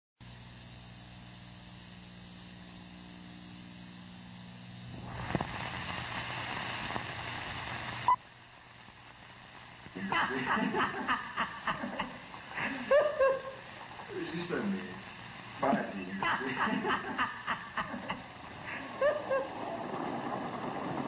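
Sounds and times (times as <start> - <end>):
low steady hum: 0.2 - 21.0
pop: 4.9 - 8.2
rushing noise: 4.9 - 8.2, 17.8 - 21.0
person speaking: 10.0 - 11.1, 12.6 - 17.2.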